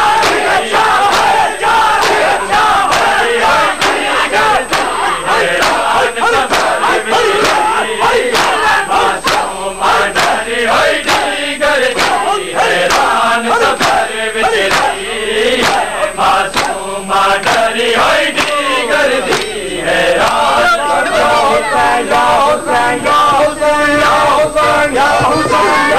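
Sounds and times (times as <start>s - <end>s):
crowd chanting: 0.0s - 25.9s
hands slapping chests: 0.2s - 3.2s, 3.8s - 5.0s, 5.6s - 7.7s, 8.3s - 8.6s, 9.2s - 9.5s, 10.2s - 10.4s, 11.0s - 11.3s, 11.9s - 12.3s, 12.9s - 13.2s, 13.8s - 14.0s, 14.6s - 15.0s, 15.6s - 15.9s, 16.5s - 16.8s, 17.4s - 17.7s, 18.3s - 19.6s, 20.2s - 20.5s.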